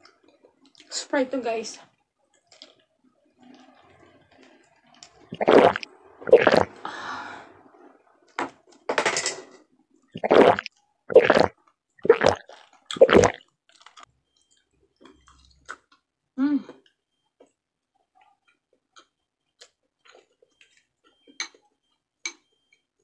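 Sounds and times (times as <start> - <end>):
person gulping water: 5.2 - 6.8, 10.2 - 14.0
soft breath: 6.8 - 7.7.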